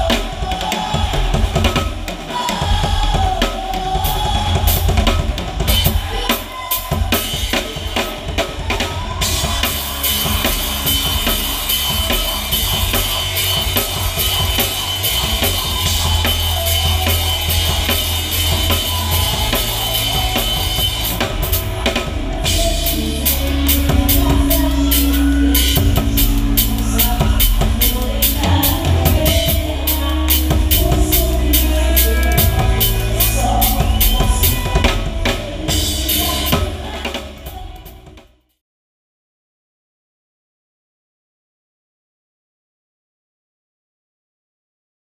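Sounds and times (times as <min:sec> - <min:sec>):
bass guitar: 0:00.0 - 0:38.4
drum kit: 0:00.0 - 0:38.5
cymbals ringing: 0:09.2 - 0:37.0.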